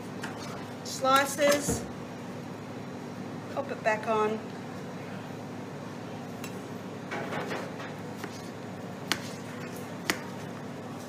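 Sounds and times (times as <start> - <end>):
knife scraping on board: 8.2 - 10.4
knife slicing cucumber: 8.2 - 10.4.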